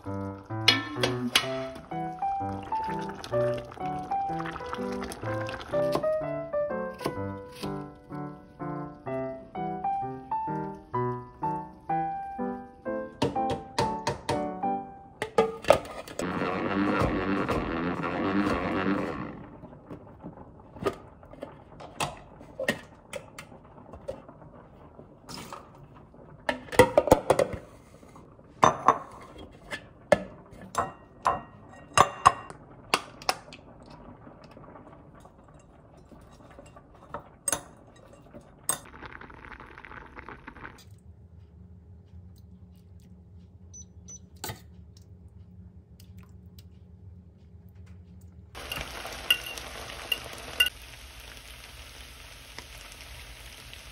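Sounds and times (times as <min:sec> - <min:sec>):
kitchen utensils clinking: 0:00.5 - 0:02.0, 0:15.2 - 0:16.2, 0:48.6 - 0:50.7
sauce sizzling in a frying pan: 0:48.6 - 0:53.9.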